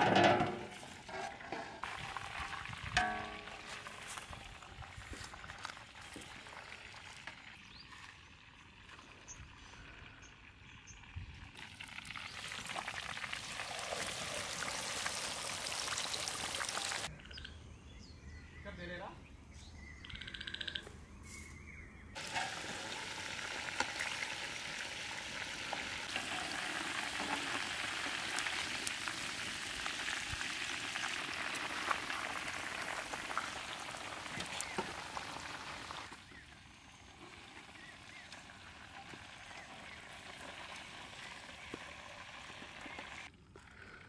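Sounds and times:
chicken sizzling in hot oil: 1.8s - 8.8s, 11.0s - 17.1s, 22.2s - 43.3s.

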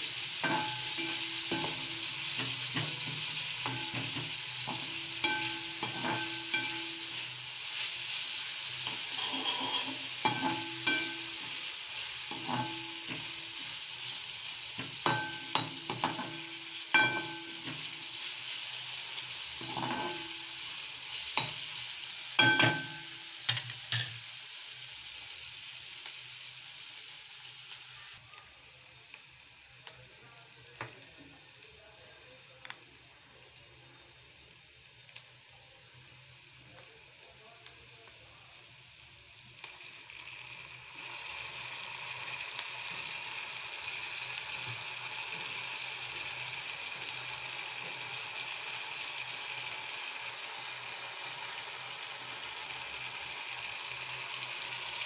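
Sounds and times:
vegetables sizzling in a pan: 0.0s - 55.0s
metal spoon scraping and clinking: 0.4s - 7.3s, 8.8s - 11.5s, 12.3s - 13.3s, 19.6s - 20.3s.

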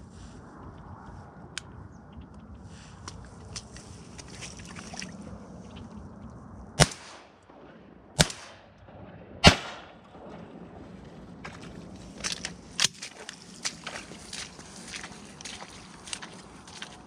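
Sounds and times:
shotgun shots with echo: 6.8s - 10.8s.

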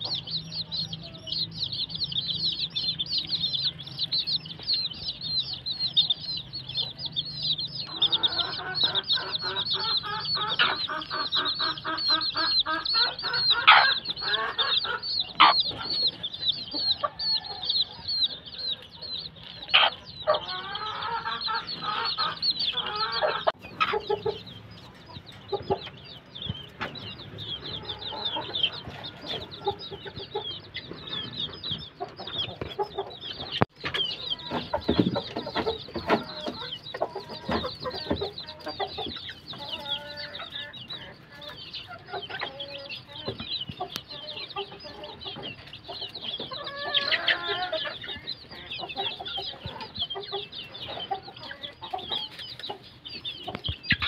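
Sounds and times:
chicks peeping: 0.0s - 54.0s
hens clucking: 0.0s - 54.0s
loud hen call: 7.9s - 15.8s, 19.8s - 23.6s, 46.5s - 48.0s.

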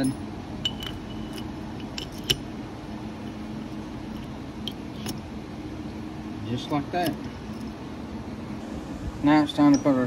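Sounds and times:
metal parts clicking and clinking: 0.0s - 2.5s, 4.1s - 5.2s, 6.6s - 7.8s
steady background hum: 0.0s - 10.0s.

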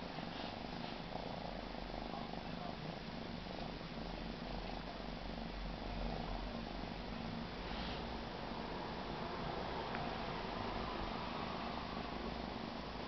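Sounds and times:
kitten purring: 0.0s - 13.0s.

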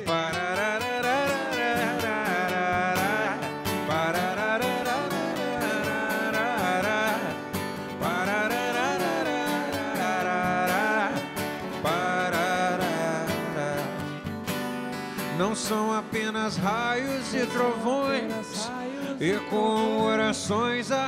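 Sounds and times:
man singing: 0.0s - 21.0s
strummed acoustic guitars: 0.0s - 21.0s.

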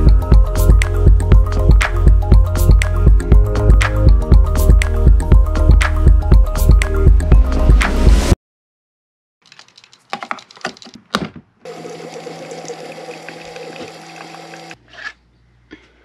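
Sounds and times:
coffee maker pumping hum: 11.7s - 14.8s.

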